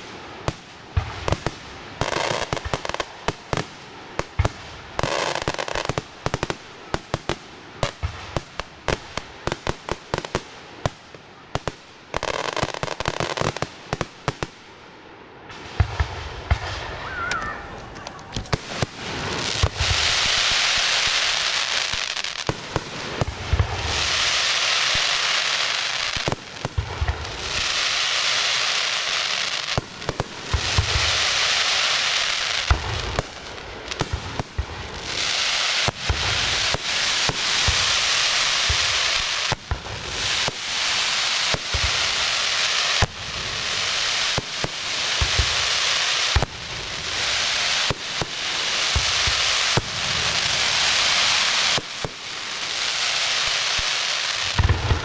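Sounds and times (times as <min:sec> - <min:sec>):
firework stars hissing: 0:15.6 - 0:55.0.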